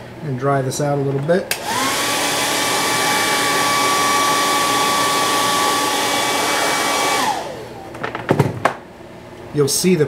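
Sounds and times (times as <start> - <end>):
hair dryer blowing: 1.5 - 8.0.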